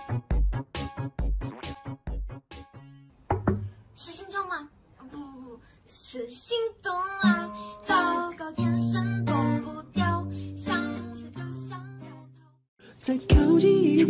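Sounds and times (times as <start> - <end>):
plucked acoustic guitar: 0.0 - 3.8
person singing: 12.8 - 14.0.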